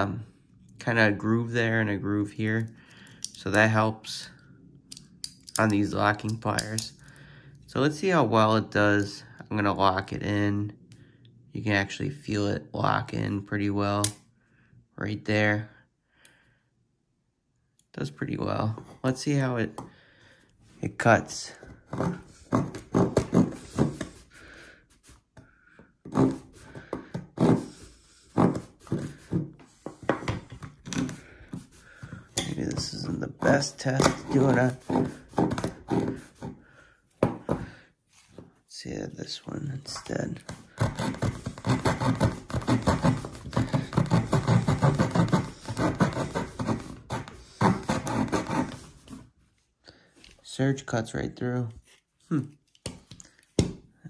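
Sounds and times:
hand sawing wooden board: 0:21.8 - 0:24.4, 0:26.1 - 0:36.6, 0:40.4 - 0:49.2.

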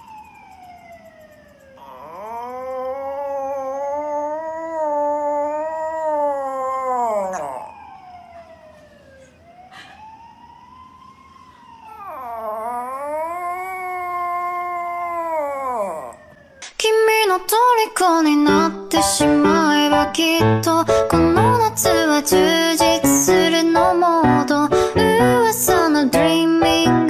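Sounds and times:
small dog howling: 0:01.8 - 0:08.0, 0:11.9 - 0:16.4.

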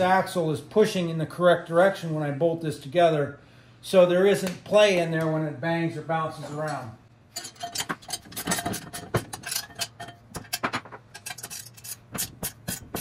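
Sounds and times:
metallic clicks of bolts and nuts: 0:06.5 - 0:12.8.

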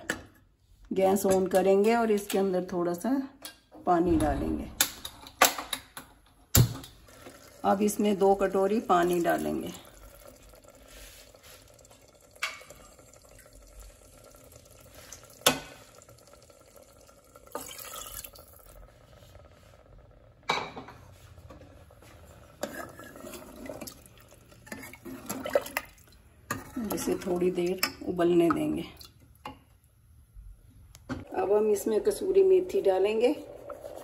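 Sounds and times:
water pouring: 0:06.9 - 0:19.8, 0:22.3 - 0:27.5, 0:31.2 - 0:34.0.

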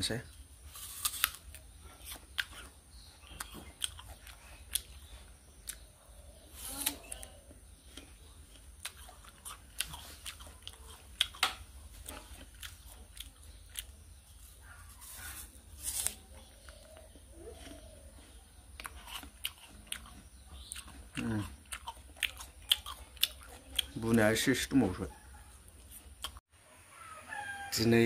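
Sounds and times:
person crunching apple: 0:00.6 - 0:05.8, 0:06.5 - 0:16.9, 0:18.7 - 0:24.1.

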